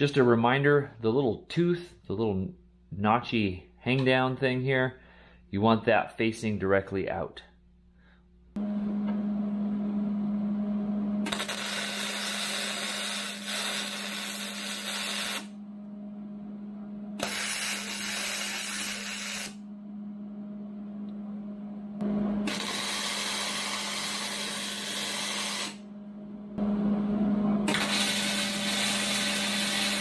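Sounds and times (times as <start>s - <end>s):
steady low hum: 7.4s - 13.4s, 14.6s - 30.0s
welding arc crackling and sizzling: 11.2s - 15.6s, 17.2s - 19.6s, 22.4s - 25.8s, 27.7s - 30.0s.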